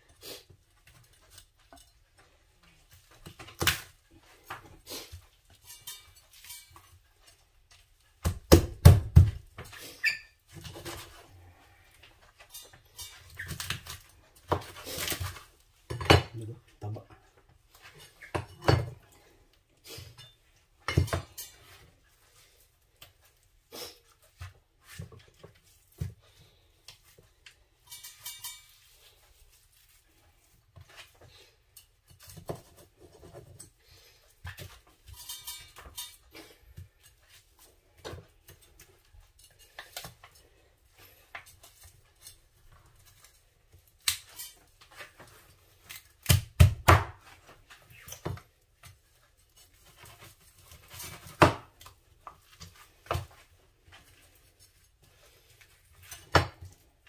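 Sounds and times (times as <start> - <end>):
utensils and dishes clinking: 3.3 - 7.4, 27.7 - 29.2, 33.2 - 37.4.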